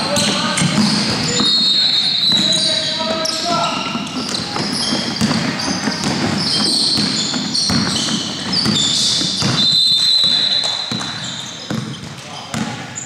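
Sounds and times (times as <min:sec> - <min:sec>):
echoing murmur of hall: 0:00.0 - 0:13.0
sneakers squeaking: 0:00.0 - 0:13.0
basketball dribbling on wood floor: 0:03.2 - 0:12.8.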